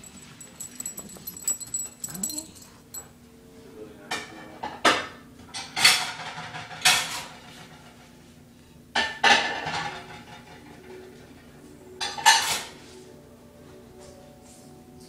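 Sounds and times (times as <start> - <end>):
dog tag jingling: 0.0 - 3.2.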